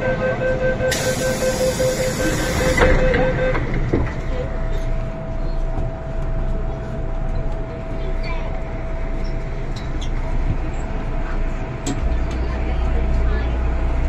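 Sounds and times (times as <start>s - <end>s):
door-closing warning beeps: 0.0s - 4.1s
train hum: 0.0s - 14.0s
hiss: 0.9s - 2.8s
train doors knocking shut: 0.9s - 4.3s.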